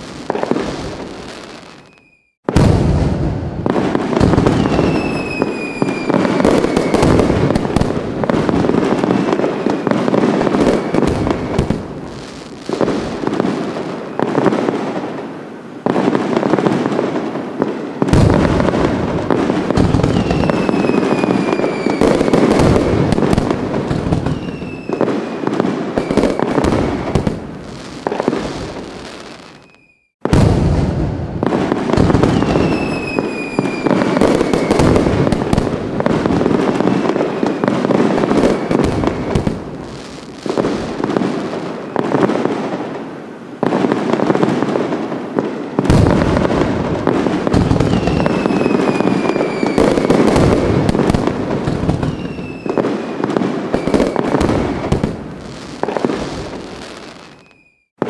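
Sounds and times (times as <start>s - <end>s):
fireworks crackling and popping: 0.0s - 58.0s
fireworks falling whistles: 0.0s - 58.0s.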